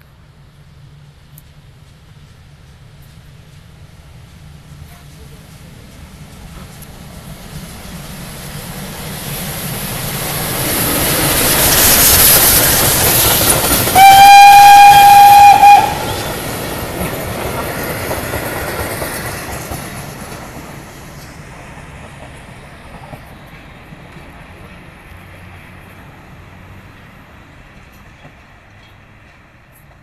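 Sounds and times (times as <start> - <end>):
train rushing on rails: 0.0 - 30.0
steam whistle: 13.9 - 16.3.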